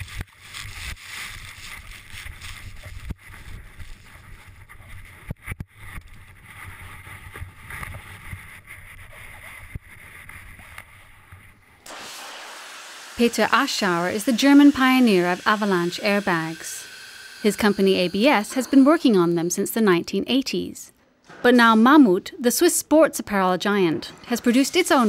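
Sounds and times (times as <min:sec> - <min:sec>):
steady hiss: 0:11.9 - 0:19.2.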